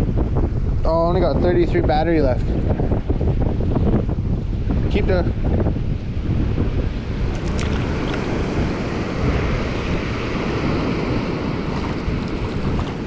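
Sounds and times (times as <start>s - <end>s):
wind buffeting microphone: 0.0s - 13.0s
river water pouring over dam: 10.6s - 13.0s.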